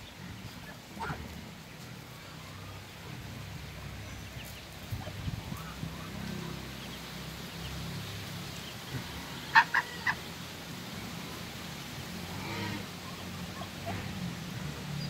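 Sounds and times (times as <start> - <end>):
poultry squawks: 9.2 - 10.3.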